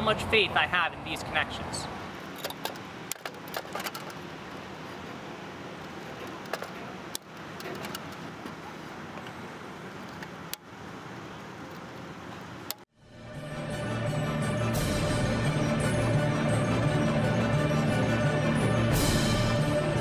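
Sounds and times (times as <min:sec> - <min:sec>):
steady background noise: 0:00.0 - 0:12.9
wires and clamps clicking: 0:06.1 - 0:08.2.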